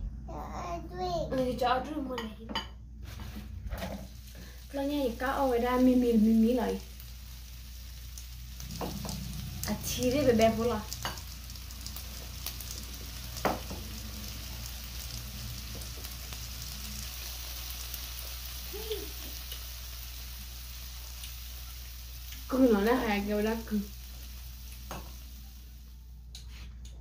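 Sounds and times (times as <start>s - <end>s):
low hum: 2.6s - 17.4s
steady hiss: 3.9s - 26.6s.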